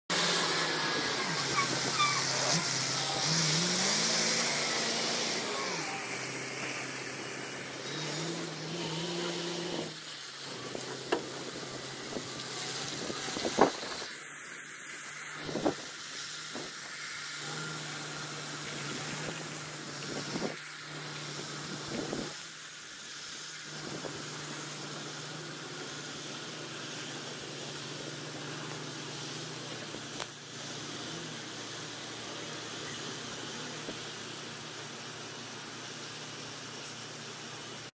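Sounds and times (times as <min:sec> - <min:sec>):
diesel truck engine running: 0:00.1 - 0:14.0
road and wind noise: 0:00.1 - 0:37.9.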